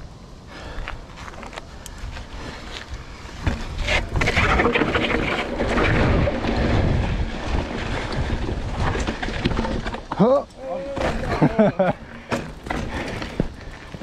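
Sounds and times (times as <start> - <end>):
tyres rolling over dirt and stones: 1.2 - 14.0
wind on microphone: 1.9 - 9.8
bike rattling over bumps: 2.3 - 14.0.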